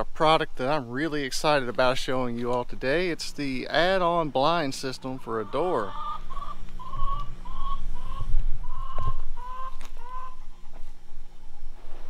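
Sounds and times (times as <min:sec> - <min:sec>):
chickens clucking: 0:04.1 - 0:11.3.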